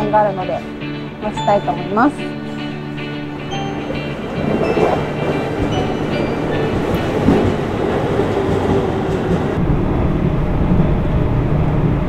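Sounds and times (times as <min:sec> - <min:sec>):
train wheels rumbling on rails: 0:03.2 - 0:12.0.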